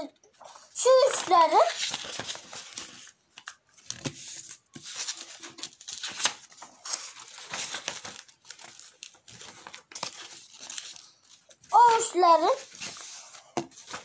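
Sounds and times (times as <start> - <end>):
paper crinkling and rustling: 0.3 - 14.0.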